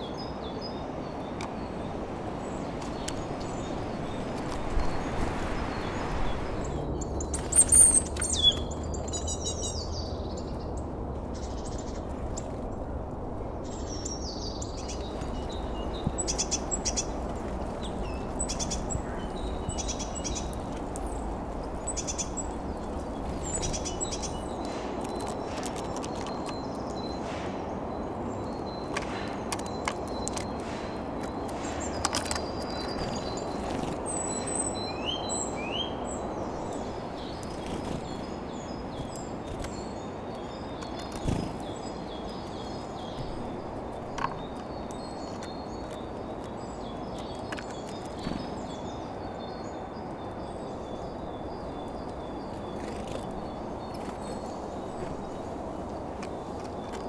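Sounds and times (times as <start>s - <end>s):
birds chirping and calling: 2.5s - 12.8s, 13.6s - 57.0s
birds pecking at seed clicks: 14.8s - 27.0s, 28.8s - 34.1s, 38.9s - 42.3s.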